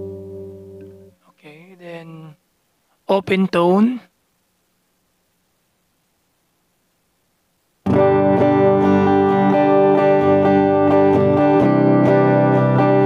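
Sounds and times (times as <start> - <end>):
clean electric guitar playing: 0.0 - 1.2, 7.8 - 13.0.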